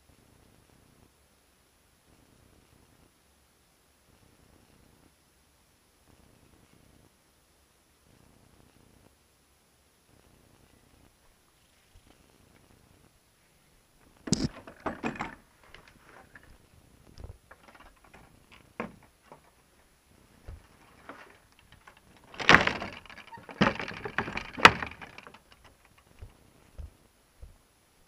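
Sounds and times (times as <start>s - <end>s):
wooden door knocking and rattling: 14.3s - 15.4s, 17.5s - 19.6s, 20.5s - 26.3s.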